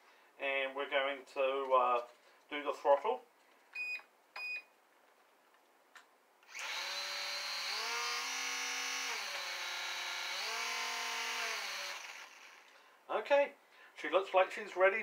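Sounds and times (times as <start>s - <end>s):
small electric motor and propeller whine: 6.5s - 12.7s.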